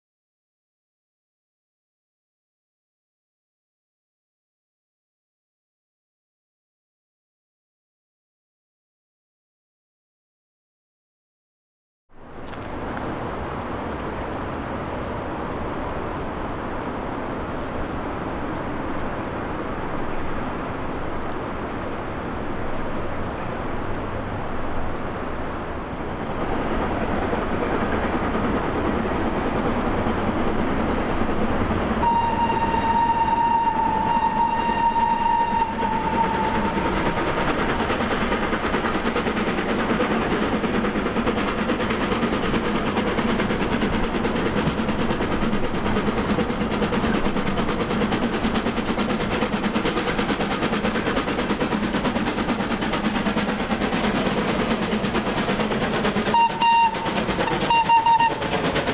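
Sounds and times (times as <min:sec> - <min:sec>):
steam locomotive rushing: 0:12.1 - 0:58.9
steam whistle blast: 0:32.0 - 0:37.2, 0:56.2 - 0:58.6.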